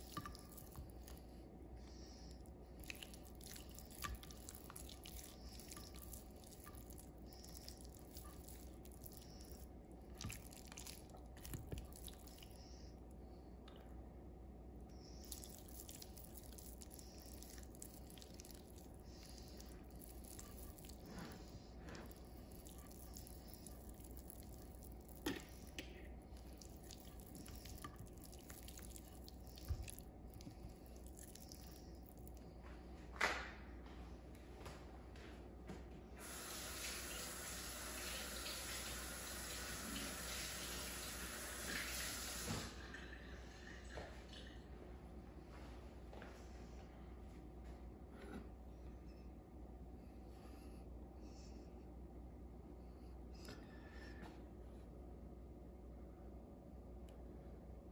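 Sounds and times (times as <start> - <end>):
wet squishing of hand on meat: 0.0 - 13.2, 14.9 - 32.6
low steady hum: 0.0 - 57.9.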